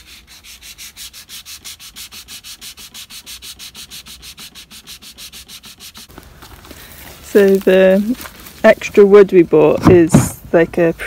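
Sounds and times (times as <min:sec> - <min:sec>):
sandpaper scraping wood: 0:00.0 - 0:06.2.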